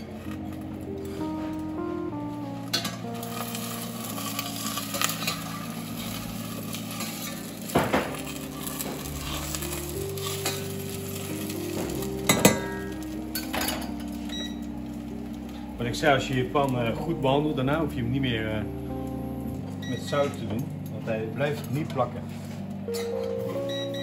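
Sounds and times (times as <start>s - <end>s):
food sizzling in a saucepan: 3.1s - 15.7s
metal spatula scraping a pan: 3.3s - 10.9s.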